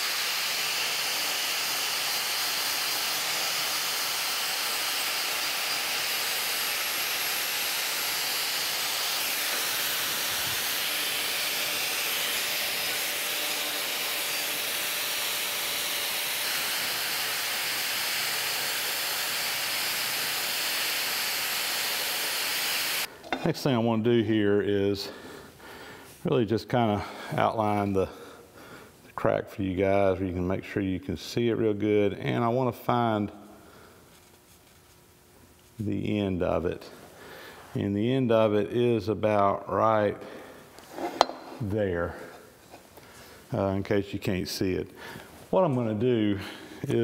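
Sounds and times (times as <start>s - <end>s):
wire wheel grinder scrubbing metal: 0.0s - 23.1s.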